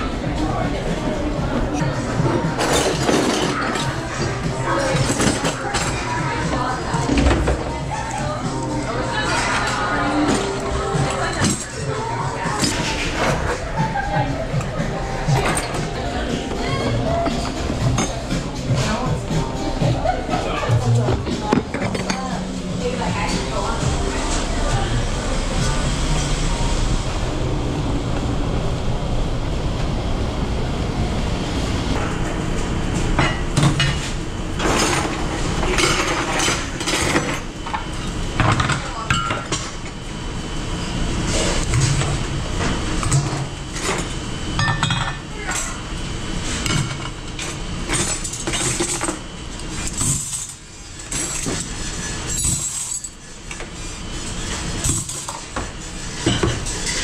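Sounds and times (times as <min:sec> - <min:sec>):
machine rumble: 0:00.0 - 0:39.0
dishes and cutlery clattering: 0:02.6 - 0:08.3, 0:09.2 - 0:13.6, 0:17.2 - 0:18.8, 0:20.3 - 0:22.5, 0:33.2 - 0:39.8, 0:43.0 - 0:45.8, 0:46.6 - 0:49.2, 0:49.8 - 0:53.7, 0:54.8 - 0:57.0
low hum: 0:13.1 - 0:33.2.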